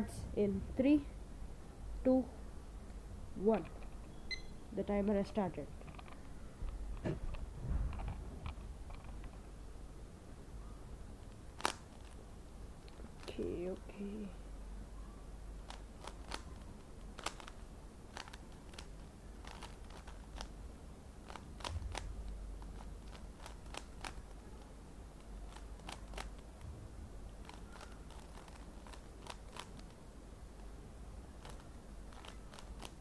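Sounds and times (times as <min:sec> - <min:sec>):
faint low hum: 0:00.0 - 0:33.0
plastic puzzle cube clicking: 0:11.6 - 0:12.1, 0:15.7 - 0:20.5, 0:21.3 - 0:24.4, 0:25.4 - 0:26.5, 0:27.4 - 0:30.0, 0:31.4 - 0:33.0.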